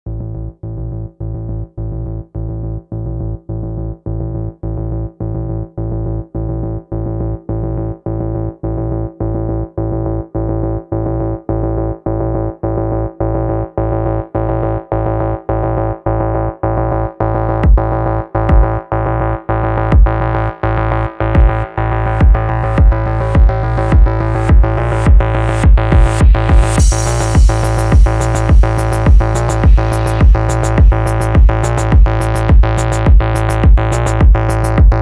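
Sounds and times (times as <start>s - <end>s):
deep bass tone: 0.0s - 35.0s
pulsing synthesizer chord: 11.1s - 35.0s.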